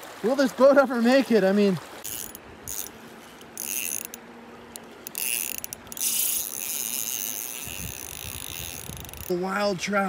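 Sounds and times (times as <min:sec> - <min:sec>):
fishing reel gears whirring: 0:02.0 - 0:09.5.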